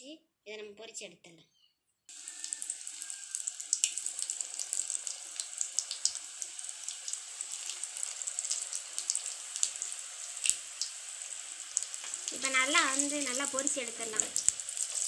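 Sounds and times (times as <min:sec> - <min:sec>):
food deep-frying in oil: 0:02.1 - 0:15.0.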